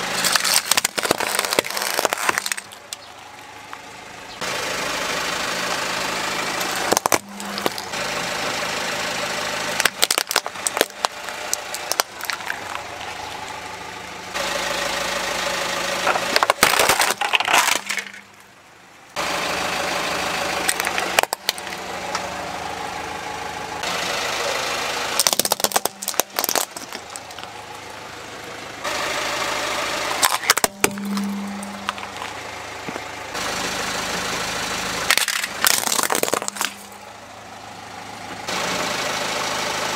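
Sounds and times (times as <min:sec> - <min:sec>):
plastic toys cracking under tyre: 0:00.0 - 0:03.1, 0:06.8 - 0:07.9, 0:09.8 - 0:13.2, 0:16.1 - 0:18.2, 0:20.6 - 0:21.8, 0:25.2 - 0:27.5, 0:30.2 - 0:31.3, 0:35.1 - 0:36.9
car engine running: 0:00.0 - 0:39.9.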